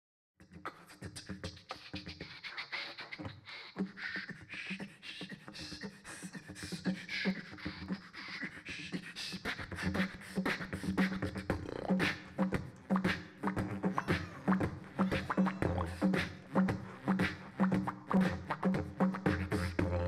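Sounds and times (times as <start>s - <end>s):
beatboxing into a microphone: 0.4s - 20.0s
didgeridoo drone: 11.6s - 20.0s.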